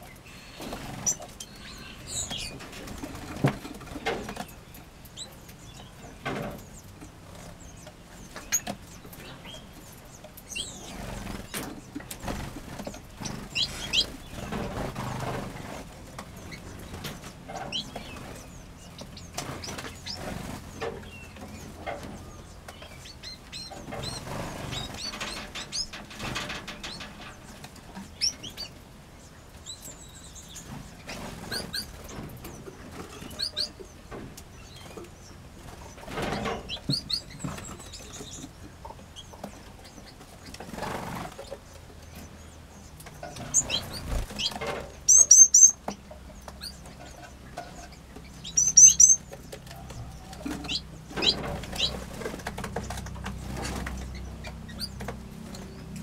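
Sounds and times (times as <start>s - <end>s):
small birds chirping: 0.0s - 56.0s
wings fluttering: 10.5s - 22.2s, 23.4s - 28.4s, 43.2s - 45.6s, 47.6s - 55.9s.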